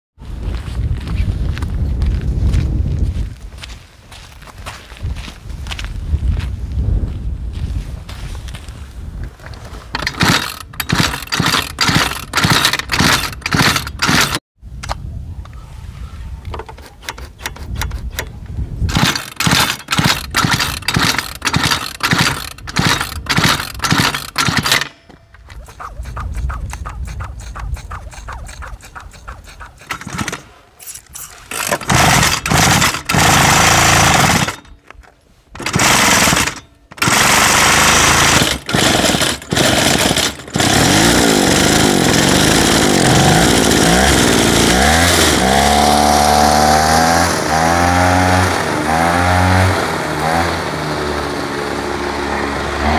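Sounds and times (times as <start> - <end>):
small two-stroke engine sputtering: 9.9 - 14.4, 18.9 - 30.5, 31.4 - 34.7, 35.5 - 52.9.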